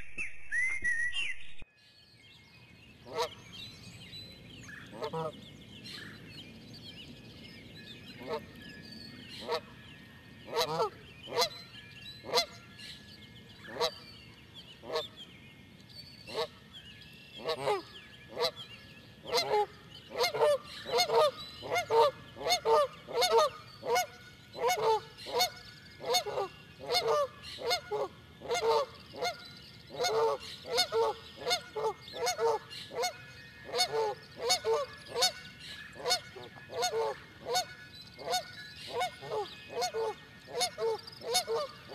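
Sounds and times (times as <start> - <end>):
geese honking: 10.5 - 11.5, 26.1 - 29.4, 30.0 - 35.4.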